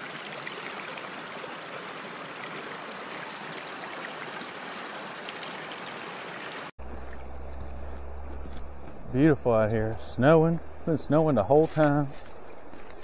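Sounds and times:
stream flowing over stones: 0.0 - 8.4.

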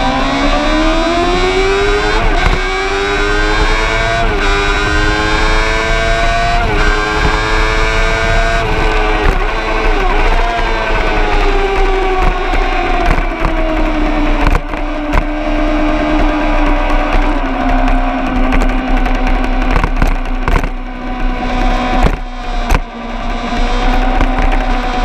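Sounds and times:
deep rumble: 0.0 - 24.7
vehicle engine running: 0.0 - 25.0
sharp knocks: 17.9 - 20.8.

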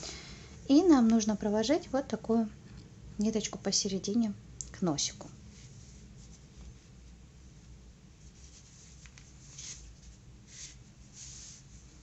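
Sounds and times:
short brushing scratches: 8.2 - 12.0.

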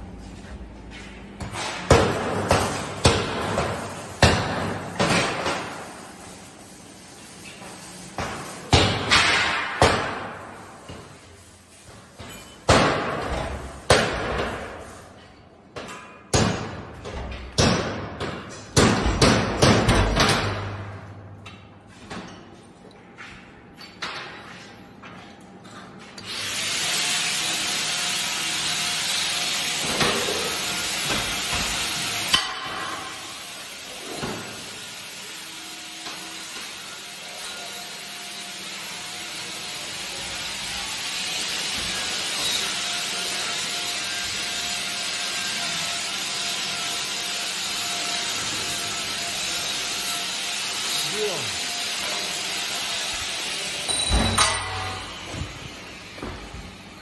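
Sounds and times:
hammer clanging on steel: 53.9 - 55.2.

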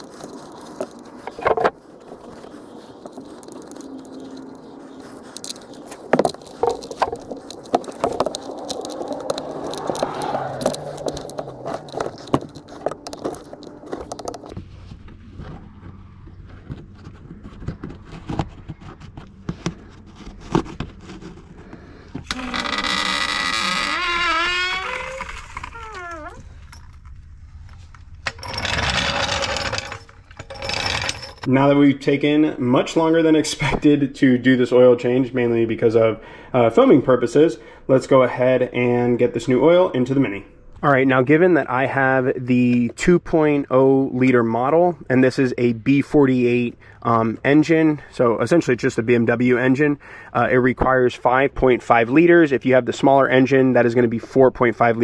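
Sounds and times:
metallic clicks and scrapes: 0.0 - 14.6.

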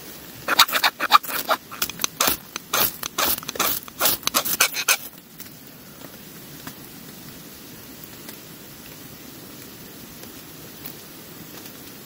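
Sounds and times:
short scraping and rubbing strokes: 0.5 - 5.1.

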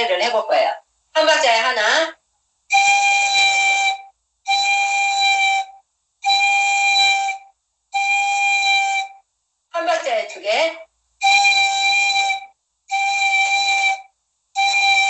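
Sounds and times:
breathy pan flute note with vibrato: 11.2 - 15.0.

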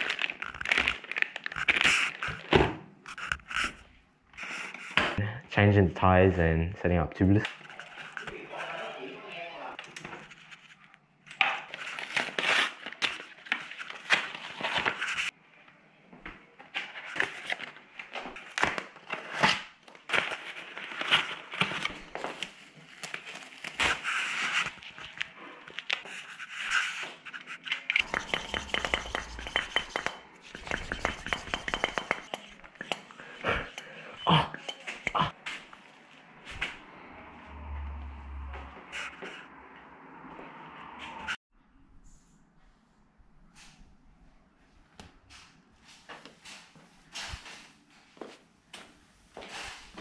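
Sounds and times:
plastic packaging crinkling: 0.0 - 2.5.

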